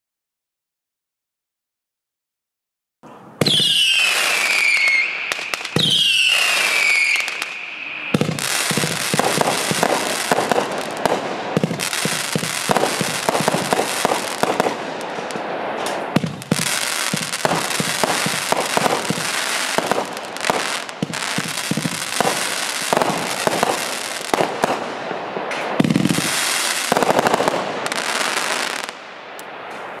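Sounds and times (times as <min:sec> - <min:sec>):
firework whistles falling in pitch: 0:03.4 - 0:09.2
fireworks bangs and crackle: 0:03.4 - 0:30.0.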